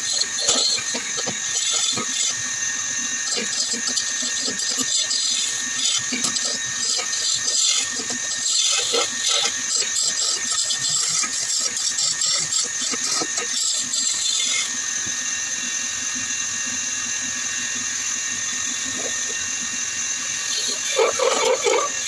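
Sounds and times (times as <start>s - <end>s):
chisel scraping spinning wood: 0.0s - 2.4s, 3.3s - 14.7s, 18.7s - 19.4s, 20.4s - 22.0s
lathe motor hum: 0.0s - 22.0s.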